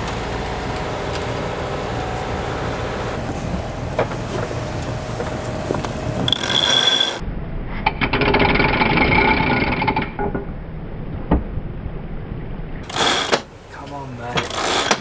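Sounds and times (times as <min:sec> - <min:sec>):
boat engine running: 0:00.0 - 0:07.2.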